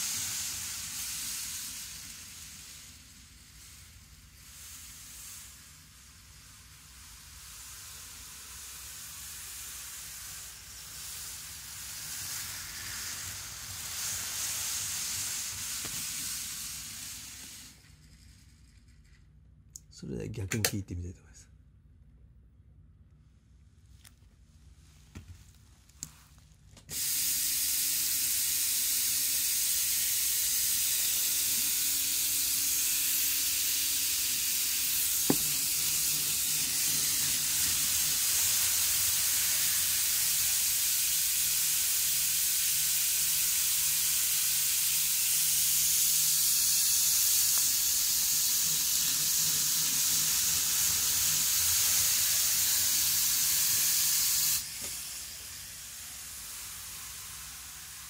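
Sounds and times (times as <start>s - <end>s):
model train running hiss: 0.0s - 19.1s, 26.9s - 58.0s
sharp click: 20.5s - 20.9s.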